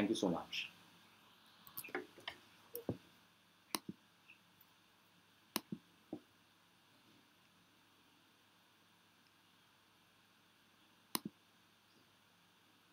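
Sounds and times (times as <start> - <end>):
computer mouse clicks: 3.7 - 4.0, 5.5 - 5.8, 11.1 - 11.4.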